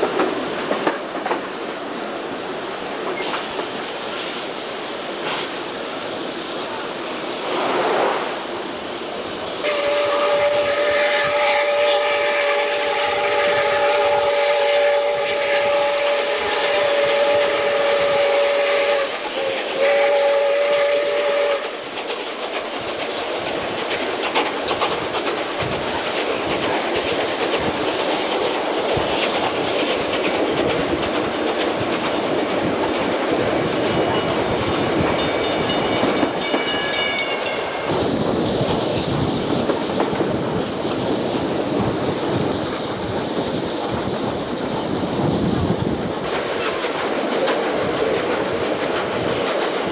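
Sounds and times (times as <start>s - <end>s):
wheels clacking over rail joints: 0.0s - 2.0s, 21.5s - 42.8s, 43.8s - 49.9s
train running noise: 0.0s - 49.9s
steam locomotive whistle: 9.6s - 21.9s.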